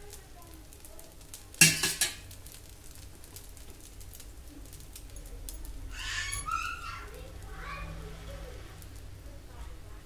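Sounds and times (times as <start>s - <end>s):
dosa sizzling on a griddle: 0.0s - 10.0s.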